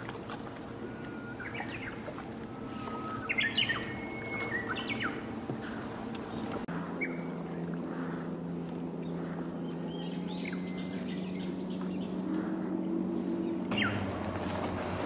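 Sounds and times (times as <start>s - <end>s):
boat motor humming: 0.0s - 15.0s
small birds chirping: 2.8s - 7.3s, 9.0s - 14.1s.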